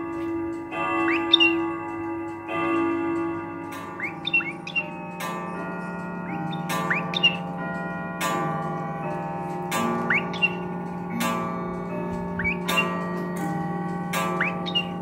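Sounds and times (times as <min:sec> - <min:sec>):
clock chiming: 0:00.0 - 0:15.0
parrot whistled calls: 0:04.0 - 0:04.8.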